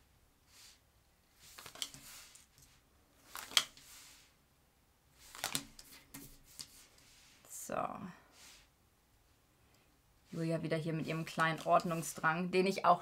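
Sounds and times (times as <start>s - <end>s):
cards snapping on wooden table: 1.6s - 2.1s, 3.3s - 3.8s, 5.3s - 6.7s.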